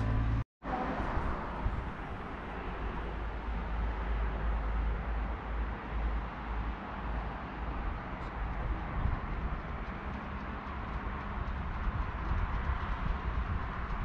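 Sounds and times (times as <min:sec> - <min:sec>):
rushing outdoor noise: 0:00.0 - 0:14.0.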